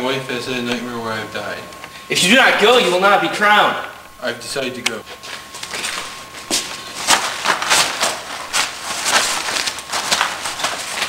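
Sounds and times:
shuffling footsteps: 0:05.1 - 0:11.0
fabric rustling: 0:05.6 - 0:11.0.

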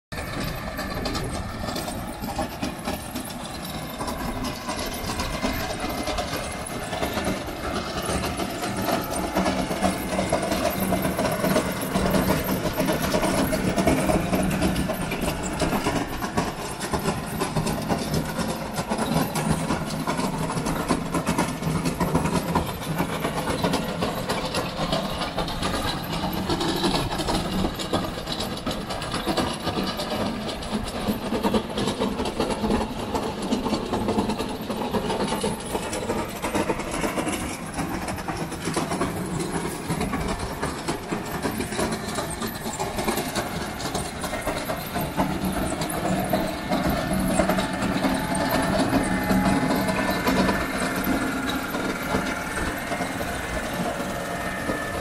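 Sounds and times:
digging chain and tracks rattling: 0:00.1 - 0:55.0
trencher engine running under load: 0:00.1 - 0:55.0.

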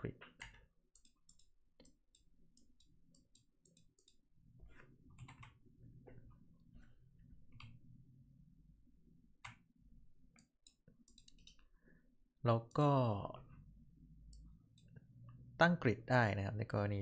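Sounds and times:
computer mouse clicks: 0:00.2 - 0:04.2, 0:07.5 - 0:07.8, 0:10.3 - 0:11.7
low steady hum: 0:02.2 - 0:16.5.

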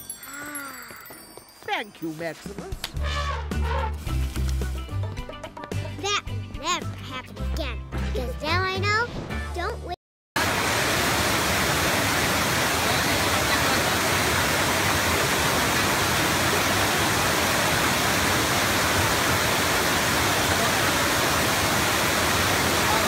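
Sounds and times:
waterfall rushing: 0:10.4 - 0:23.0.

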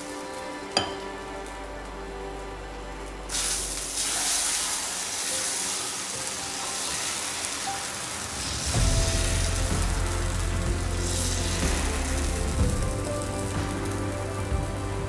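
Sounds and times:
background music: 0:00.0 - 0:15.0
batter sizzling on hot griddle: 0:03.3 - 0:15.0
loud deep rumble: 0:08.3 - 0:15.0.

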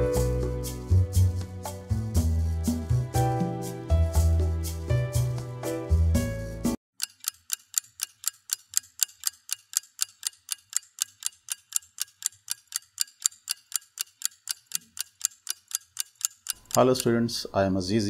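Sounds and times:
music: 0:00.0 - 0:06.8
steady clock ticking: 0:07.0 - 0:17.5.

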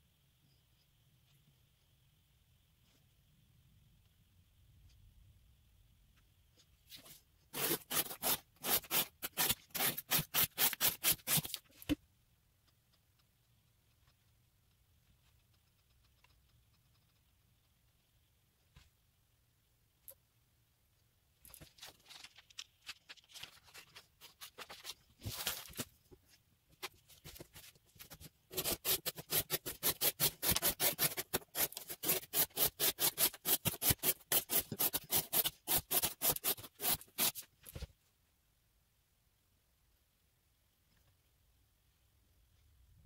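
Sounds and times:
knife slicing cardboard: 0:07.6 - 0:11.6, 0:28.5 - 0:37.4.

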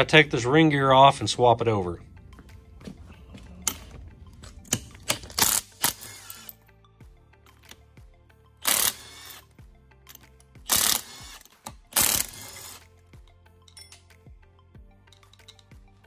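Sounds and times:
faint background music: 0:00.0 - 0:16.0
power tool bursts: 0:08.6 - 0:09.4, 0:10.7 - 0:12.8.

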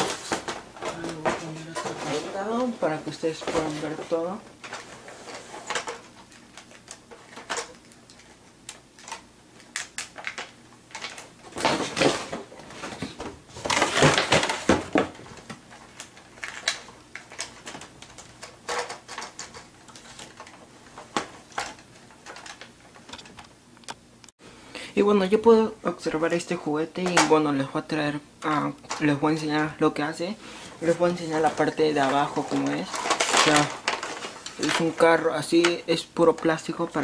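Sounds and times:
rustling scrapes: 0:00.0 - 0:06.1, 0:30.5 - 0:35.0.

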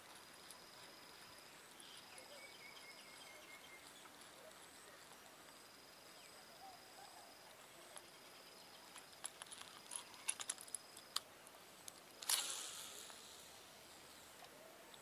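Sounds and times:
fishing reel metallic clicks: 0:12.2 - 0:13.4
short rush of noise: 0:12.2 - 0:13.7.

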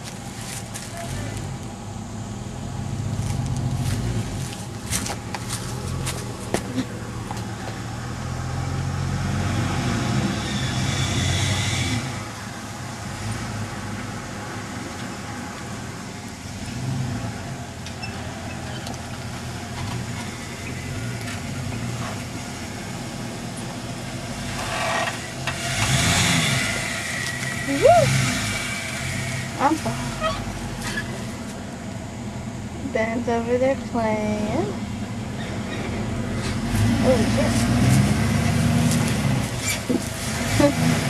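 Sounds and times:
truck engine running at low revs: 0:00.0 - 0:41.0.

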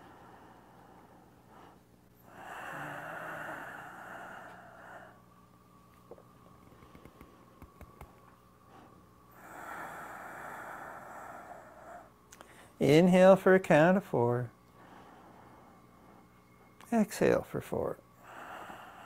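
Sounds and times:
slow deep breathing: 0:00.0 - 0:06.2, 0:08.6 - 0:12.8, 0:14.6 - 0:16.7, 0:18.0 - 0:19.0.

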